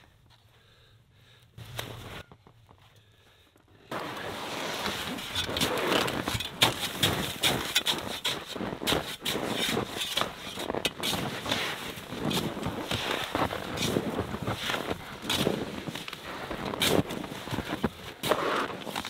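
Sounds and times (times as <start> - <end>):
shovel scraping snow: 3.9 - 19.0.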